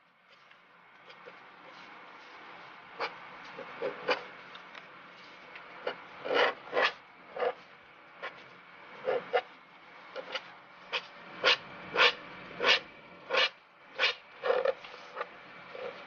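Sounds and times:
pen nib scratching paper: 0:05.8 - 0:07.6, 0:10.2 - 0:16.0.

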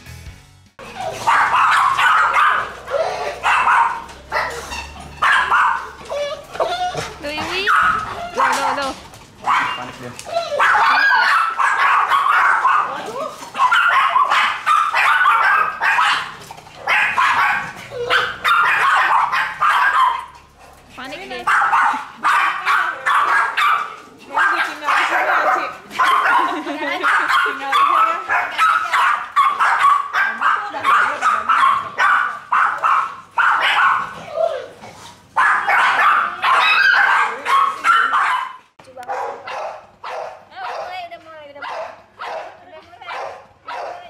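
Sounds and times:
dog whining: 0:00.8 - 0:11.7, 0:17.0 - 0:18.9
dog barking and yelping: 0:00.8 - 0:41.0, 0:41.6 - 0:44.0.

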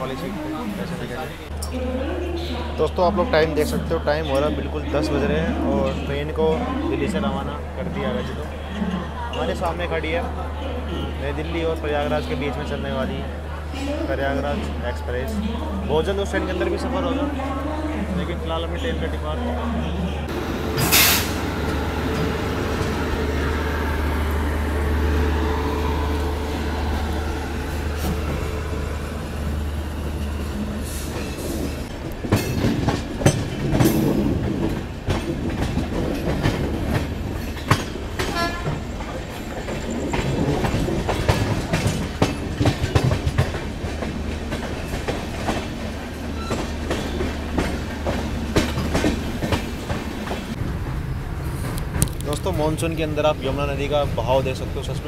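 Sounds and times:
train coach rumbling: 0:00.0 - 0:55.0
train wheels clattering over rail joints: 0:30.0 - 0:54.8.

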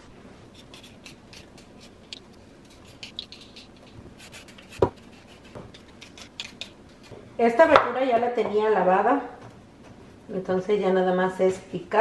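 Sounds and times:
vegetable peeler scraping: 0:00.5 - 0:07.1.

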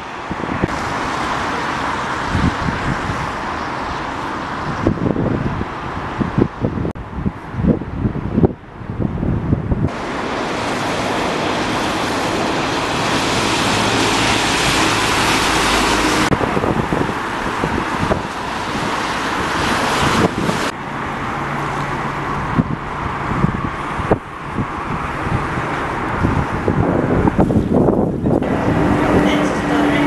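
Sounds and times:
road traffic passing: 0:00.0 - 0:30.0
wind buffeting microphone: 0:00.0 - 0:30.0
low engine hum: 0:09.7 - 0:30.0.

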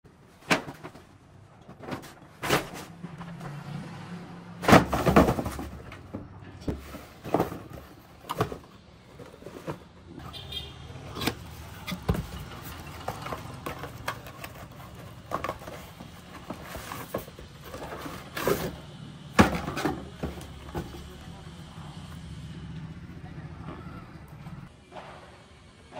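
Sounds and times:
paper bags and boxes rustling: 0:00.1 - 0:03.7, 0:04.6 - 0:21.7.

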